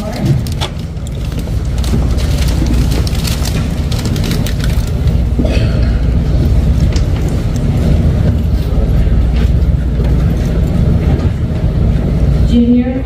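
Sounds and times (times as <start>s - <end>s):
loud low rumble: 0.0s - 13.0s.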